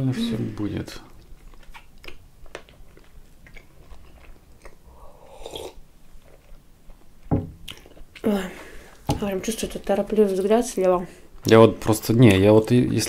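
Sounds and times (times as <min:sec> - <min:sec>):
soft chewing: 0:01.0 - 0:08.3
sip from a mug: 0:04.9 - 0:05.8.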